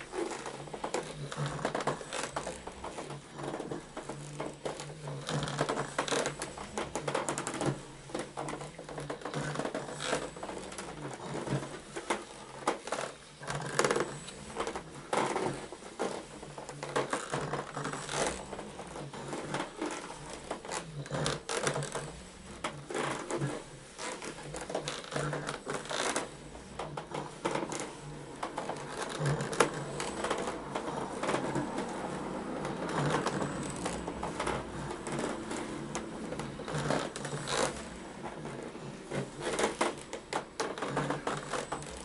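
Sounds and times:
clicks knocks and scuffs on rugs: 0.0 - 42.0.

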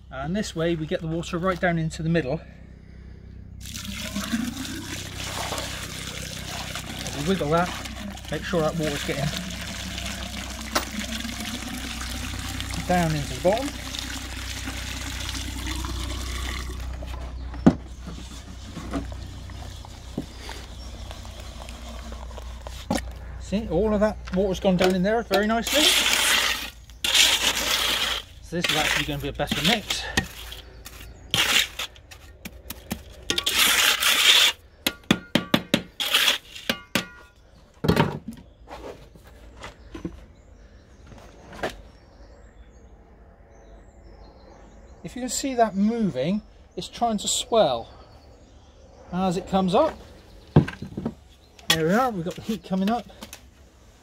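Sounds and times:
water pouring into metal bin: 3.6 - 17.0
trowel scraping sand mix: 4.3 - 11.2, 12.2 - 15.2, 24.9 - 34.7, 36.0 - 36.8.

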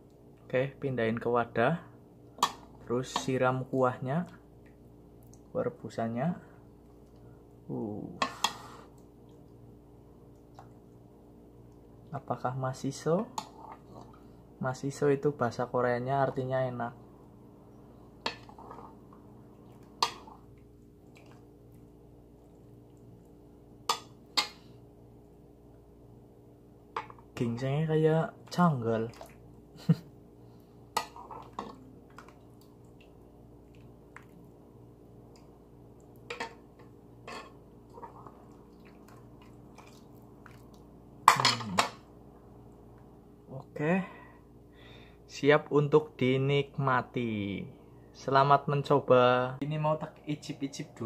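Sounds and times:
broth pouring and dripping: 37.8 - 40.8.

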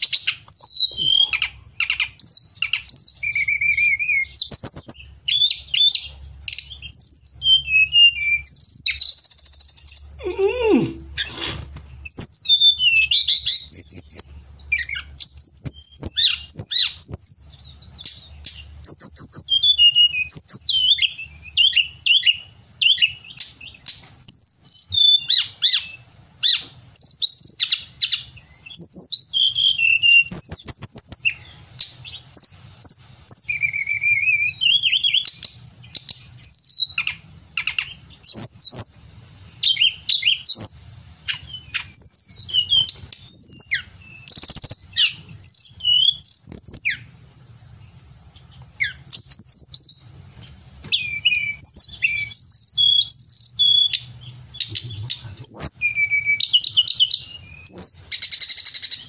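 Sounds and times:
bird singing high whistled phrases: 0.0 - 11.3, 12.1 - 47.1, 48.8 - 50.1, 50.9 - 59.0.

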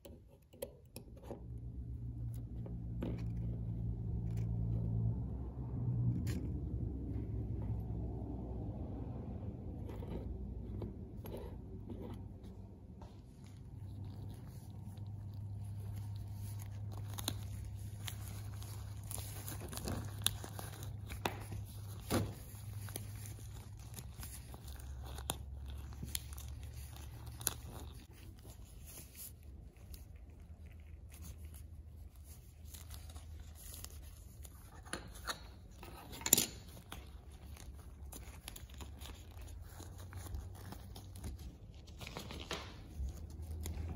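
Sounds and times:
low steady hum: 0.0 - 43.9
gloves rustling and crinkling: 8.8 - 43.9.

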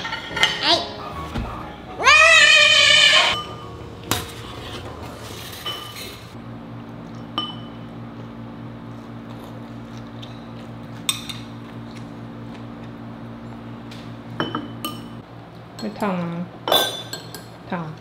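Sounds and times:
steady low hum: 3.4 - 15.8.

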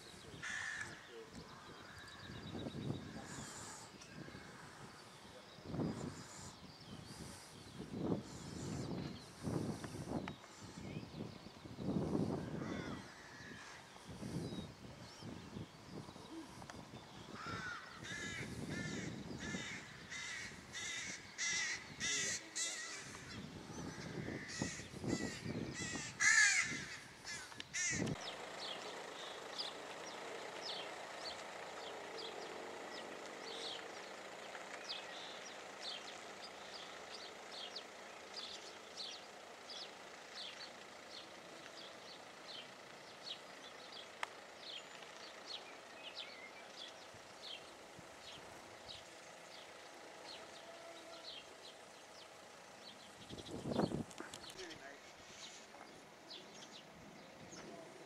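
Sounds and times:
birds with harsh rapid calls: 0.0 - 58.0.

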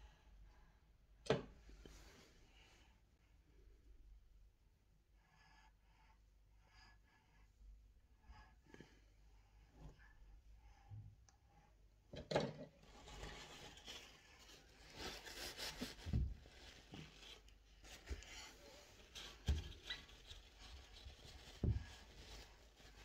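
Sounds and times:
rubbing and scraping handling noises: 12.8 - 23.0.

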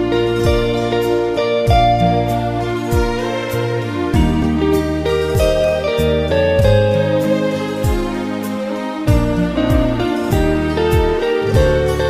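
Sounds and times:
bass line: 0.0 - 12.0
sustained chords: 0.0 - 12.0
soft drum hits: 6.6 - 6.9.

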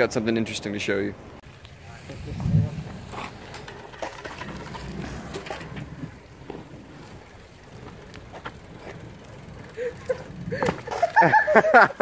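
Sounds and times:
bike tyre rumble on asphalt: 1.4 - 12.0
bike clicks and knocks: 2.8 - 12.0.

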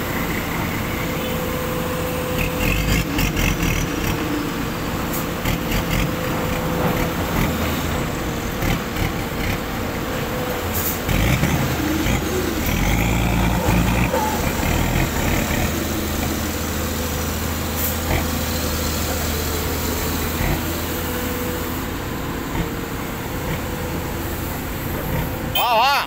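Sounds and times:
diesel truck engine droning: 0.0 - 26.0.

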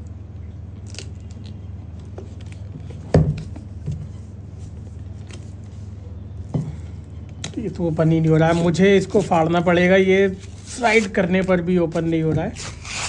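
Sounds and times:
steady low hum: 0.0 - 13.0
cardboard rustling and scraping: 2.1 - 6.0, 7.8 - 13.0.

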